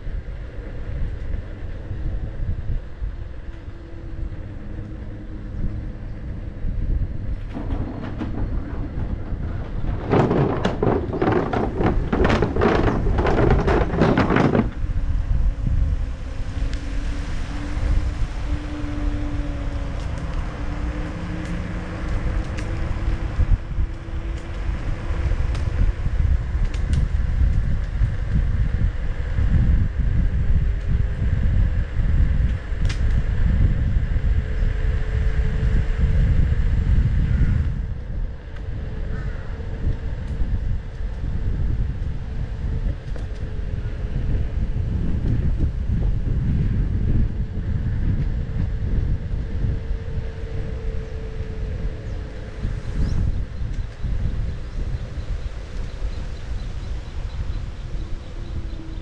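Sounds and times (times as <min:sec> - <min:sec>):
faint hum drifting in pitch: 0:00.0 - 0:59.0
wind buffeting microphone: 0:00.0 - 0:59.0
dense crackling rattle: 0:07.3 - 0:15.2.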